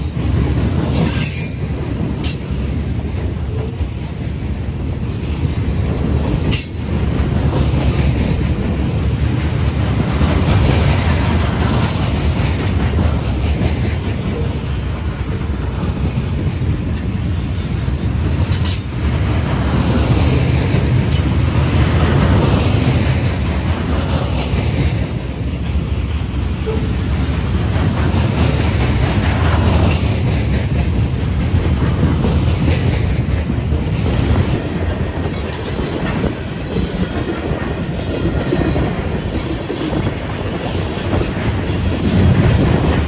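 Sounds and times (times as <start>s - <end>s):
train wheels rumbling on rails: 0.0s - 43.0s.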